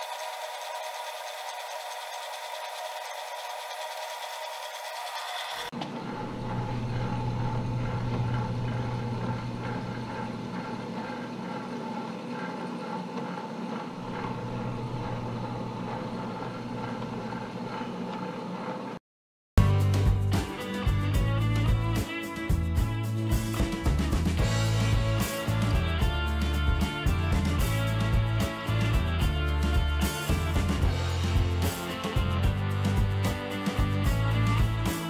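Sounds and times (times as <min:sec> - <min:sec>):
metal lathe running hum: 0:00.0 - 0:19.0.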